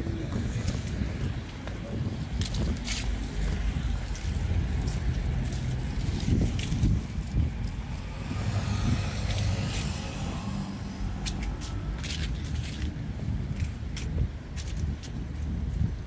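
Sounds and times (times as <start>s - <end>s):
vehicle engine humming: 0.0s - 15.8s.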